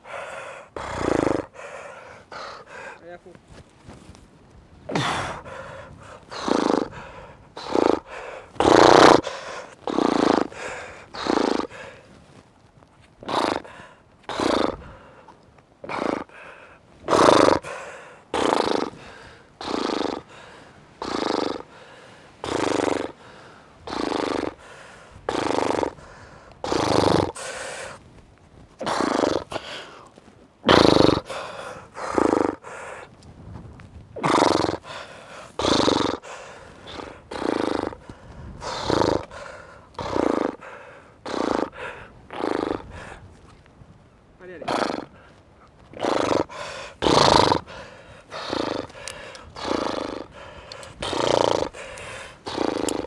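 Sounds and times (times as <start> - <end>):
person breathing hard: 0.0 - 3.2, 4.9 - 12.4, 13.2 - 28.0, 28.8 - 30.2, 31.1 - 33.2, 34.7 - 43.4, 46.2 - 53.0
forced exhalation grunts: 4.9 - 12.0.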